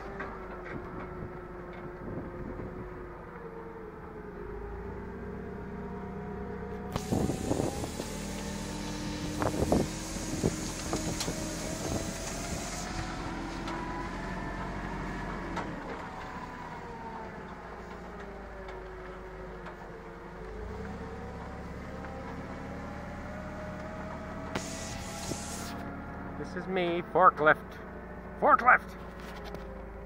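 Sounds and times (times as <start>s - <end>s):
forklift truck whining drone: 0.0s - 30.0s
hiss: 6.9s - 13.7s, 24.5s - 25.9s.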